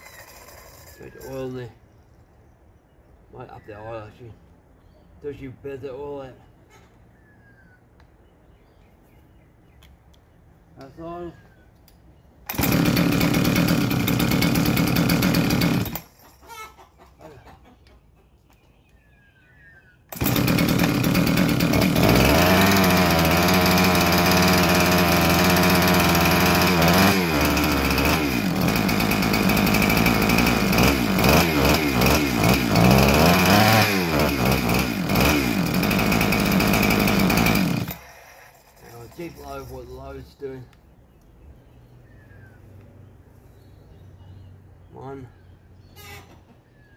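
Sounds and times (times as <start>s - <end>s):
chainsaw engine starting and revving: 0.0s - 1.4s, 12.5s - 16.1s, 20.1s - 39.5s.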